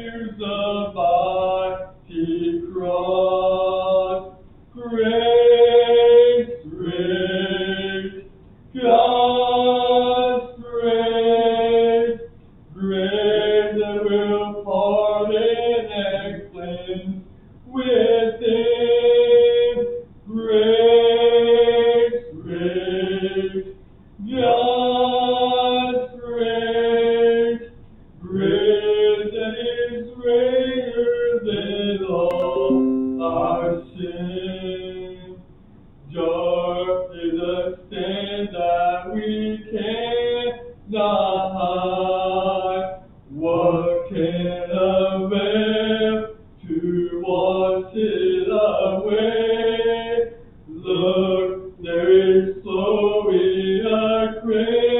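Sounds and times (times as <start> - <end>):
hymn sung in held notes: 0.0 - 8.2, 28.3 - 35.3.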